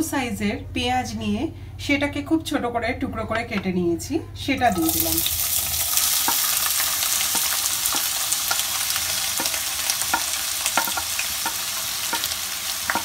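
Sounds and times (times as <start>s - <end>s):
onions sizzling in oil: 4.6s - 13.0s.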